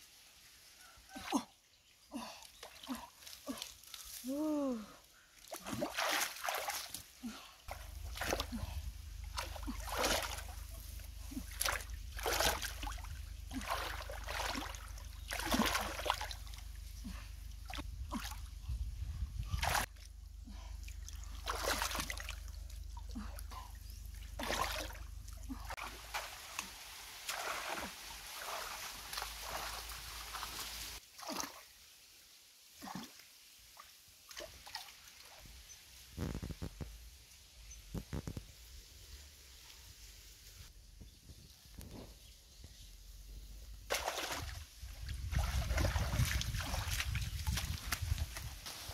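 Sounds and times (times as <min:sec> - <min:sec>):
hands splashing in shallow water: 0:43.9 - 0:48.9.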